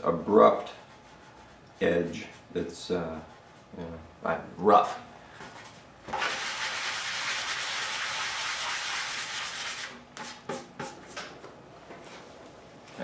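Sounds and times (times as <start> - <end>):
sanding block scratching: 5.6 - 11.0.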